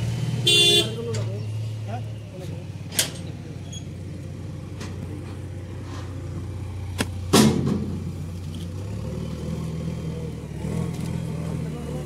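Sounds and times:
vehicle engine idling: 0:00.0 - 0:12.0
sharp knocks and clatter: 0:07.0 - 0:08.2.

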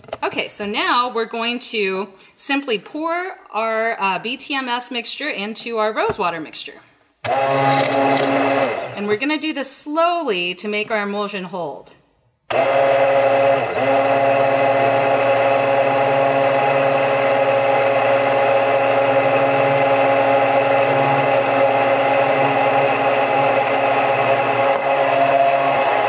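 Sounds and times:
stick blender running in liquid: 0:07.3 - 0:09.1, 0:12.5 - 0:26.0.

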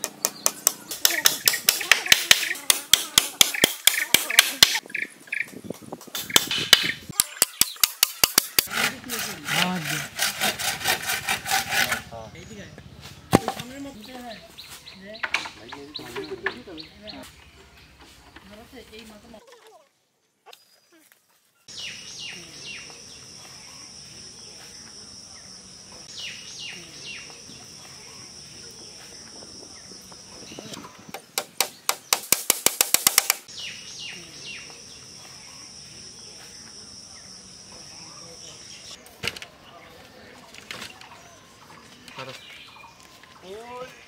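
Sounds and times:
bird chirps: 0:12.2 - 0:18.6, 0:21.6 - 0:32.2, 0:33.4 - 0:40.3
rapid sharp clicks: 0:31.4 - 0:33.5.

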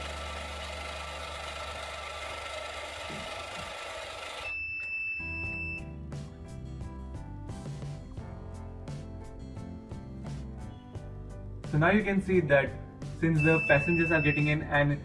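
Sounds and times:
small gear motors whirring: 0:00.0 - 0:04.5
steady high beep: 0:04.4 - 0:05.8, 0:13.4 - 0:14.6
background music: 0:05.2 - 0:15.0.

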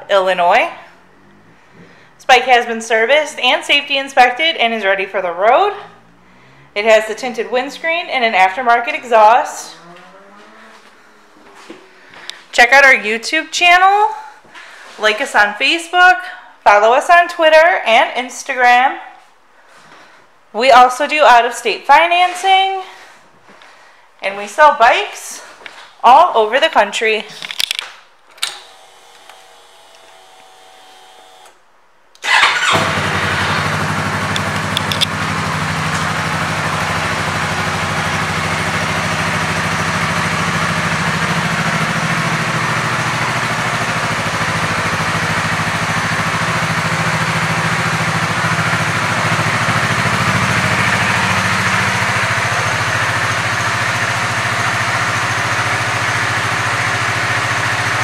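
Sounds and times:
motorcycle engine idling: 0:09.6 - 0:12.0, 0:32.3 - 0:58.0.

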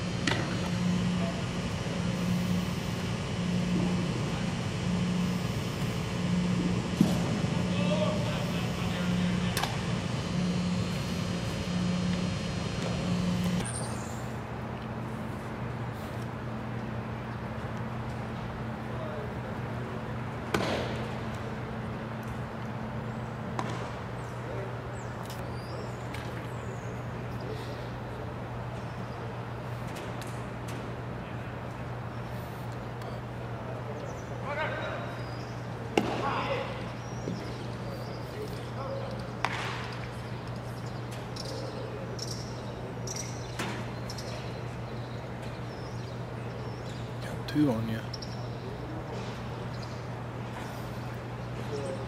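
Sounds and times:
pulsing low hum: 0:00.0 - 0:20.4
low even hum: 0:00.0 - 0:52.0
sports hall background rumble: 0:00.0 - 0:52.0.

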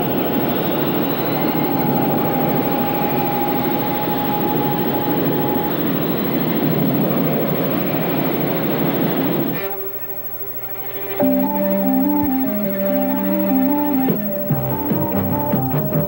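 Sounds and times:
jet engines roaring: 0:00.0 - 0:09.8
thin high tone: 0:00.0 - 0:16.0.

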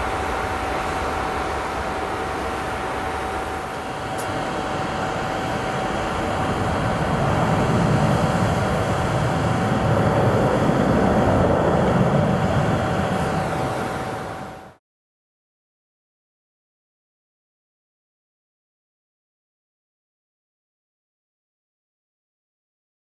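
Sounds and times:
jet engines roaring: 0:00.0 - 0:14.8.

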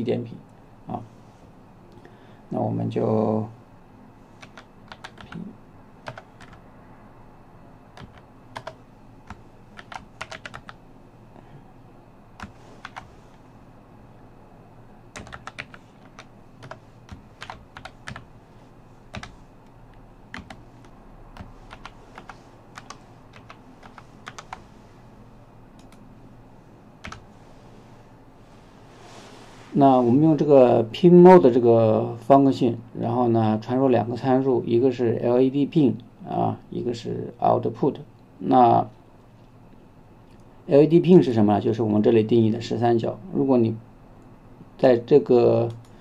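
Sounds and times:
keyboard typing: 0:04.4 - 0:06.6, 0:08.0 - 0:10.8, 0:12.4 - 0:13.1, 0:15.1 - 0:18.3, 0:19.1 - 0:19.4, 0:20.3 - 0:24.6, 0:25.8 - 0:26.0, 0:27.0 - 0:27.3.

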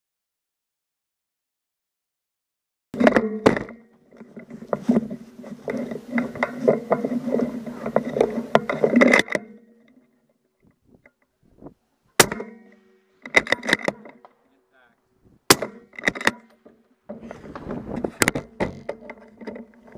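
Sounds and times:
rattling against wooden boards: 0:12.2 - 0:14.4, 0:15.5 - 0:19.9
sharp knocks: 0:12.2 - 0:14.4, 0:15.5 - 0:19.4.

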